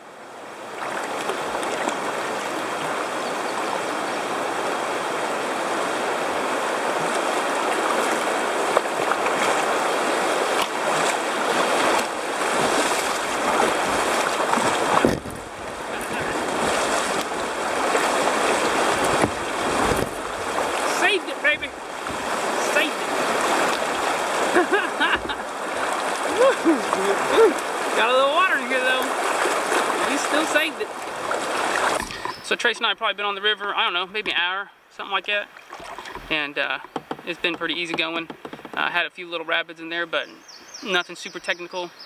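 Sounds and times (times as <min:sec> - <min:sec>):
whitewater rushing: 0:00.0 - 0:33.3
water splashing against hull: 0:00.4 - 0:32.9, 0:35.4 - 0:39.0.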